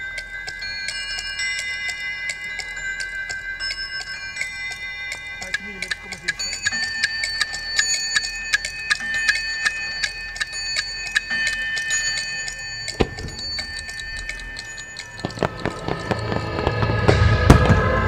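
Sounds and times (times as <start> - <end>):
clock ticking effect: 0.0 - 17.2
held high tones: 0.0 - 17.5
fireworks launching reports: 15.0 - 18.0.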